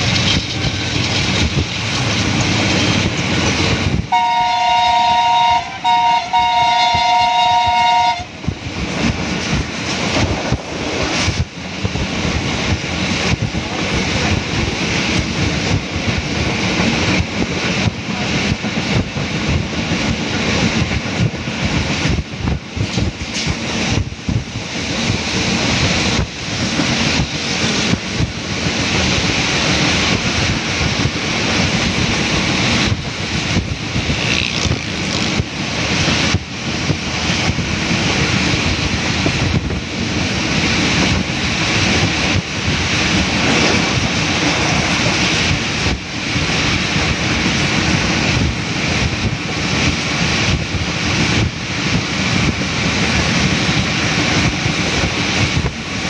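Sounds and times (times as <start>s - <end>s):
moving train running noise: 0.0s - 56.0s
locomotive horn two-note chord: 4.1s - 8.3s.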